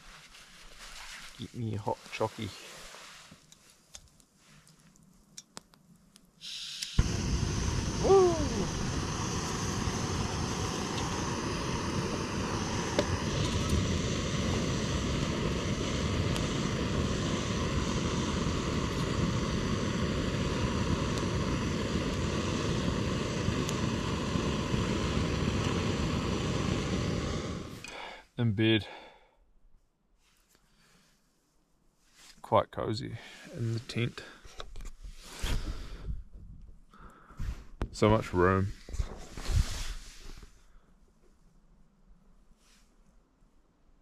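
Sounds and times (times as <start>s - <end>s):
gas burner hissing: 6.4s - 28.2s, 35.2s - 36.2s, 37.4s - 40.6s.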